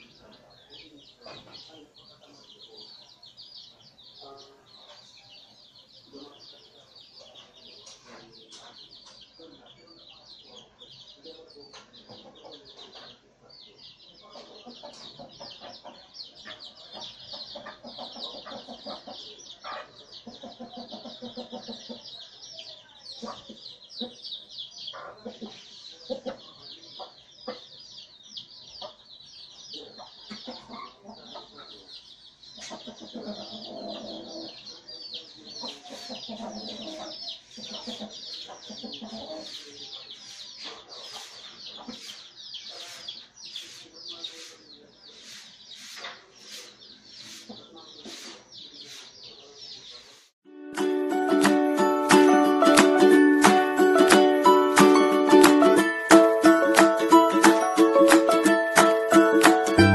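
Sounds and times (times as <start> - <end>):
chicks peeping: 0.0 - 59.9
hen clucking: 14.3 - 22.0, 29.8 - 31.9, 32.6 - 34.8, 35.4 - 49.2.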